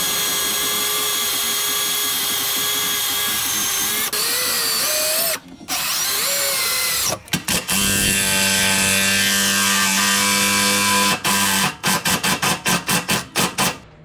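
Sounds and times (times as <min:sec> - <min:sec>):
cordless power tool spinning bolt: 0:00.0 - 0:08.2.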